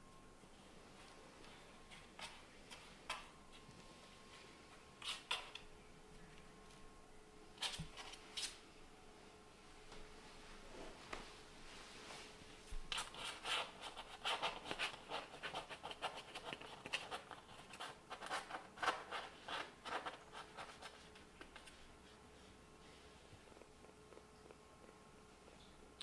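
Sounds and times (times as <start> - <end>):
kitten claws scratching towel: 5.0 - 5.6, 12.9 - 22.6.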